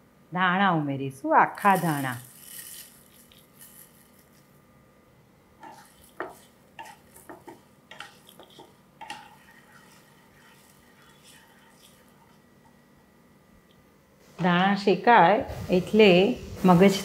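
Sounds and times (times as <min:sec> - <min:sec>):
spatula scraping frying pan: 0:01.6 - 0:04.4, 0:05.6 - 0:12.6.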